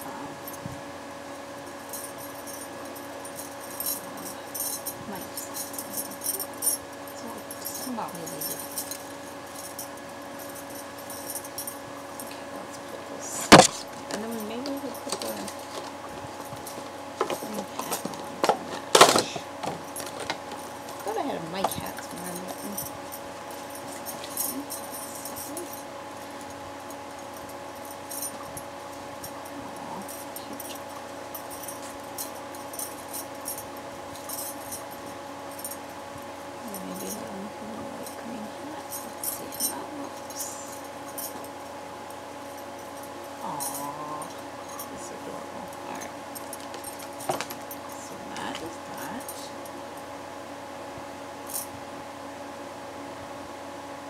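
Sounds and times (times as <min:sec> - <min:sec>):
faint steady hum: 0:00.0 - 0:54.0
bracelets jingling: 0:01.6 - 0:41.8, 0:42.4 - 0:49.6
handling knocks: 0:13.3 - 0:25.8.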